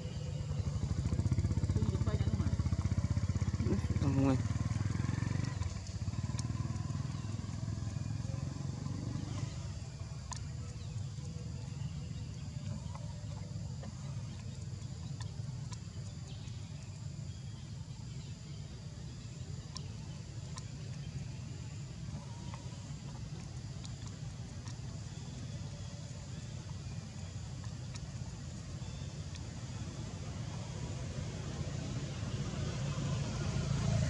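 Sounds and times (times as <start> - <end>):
engine rumbling: 0.0 - 34.0
faint high ticks: 4.3 - 17.4, 19.5 - 29.8.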